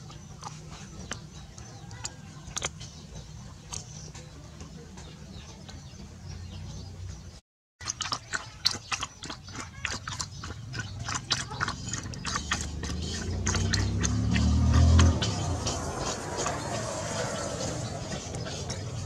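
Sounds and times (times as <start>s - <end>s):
dog lapping water: 0.0s - 3.9s, 7.8s - 19.0s.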